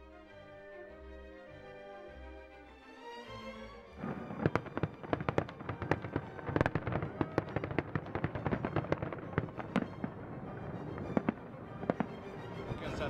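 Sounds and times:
fireworks bangs and crackling: 0:04.0 - 0:13.0.

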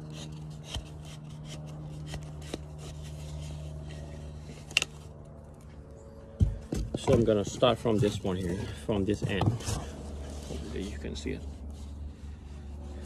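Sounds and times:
steady low hum: 0:00.0 - 0:13.0
rope rubbing against a float: 0:07.3 - 0:13.0.

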